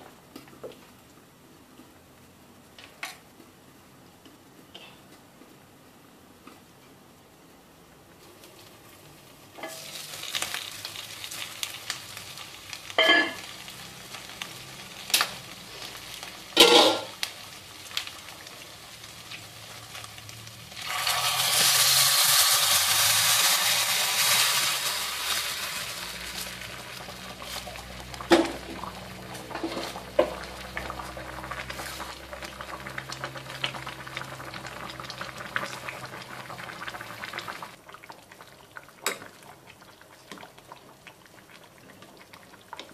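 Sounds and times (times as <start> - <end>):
sauce sizzling in a saucepan: 8.5 - 42.9
cookware clinking and knocking: 13.0 - 13.4.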